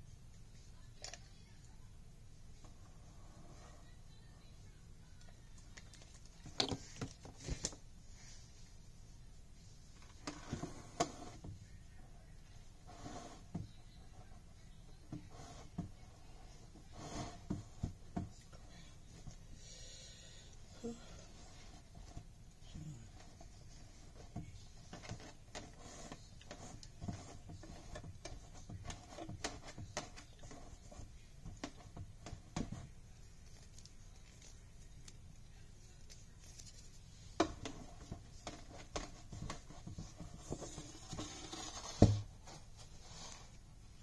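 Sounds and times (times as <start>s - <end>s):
thump: 42.0s - 42.3s.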